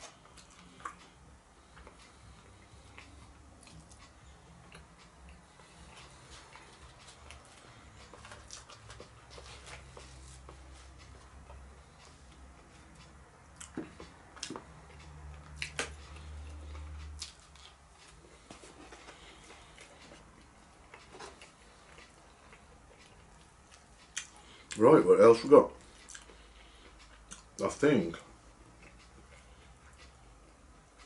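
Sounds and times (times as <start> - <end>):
chewing food: 0.0 - 24.8, 25.8 - 31.0.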